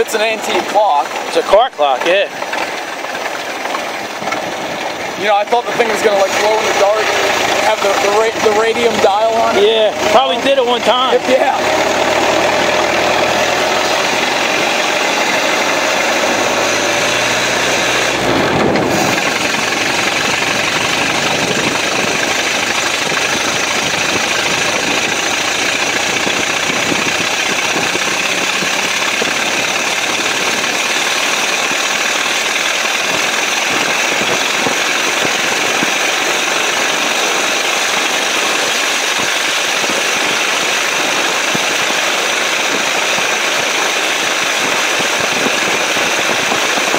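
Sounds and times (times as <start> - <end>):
old car engine cruising: 0.0 - 46.9
tyres on wet road: 0.0 - 46.9
wind rushing: 11.6 - 30.9.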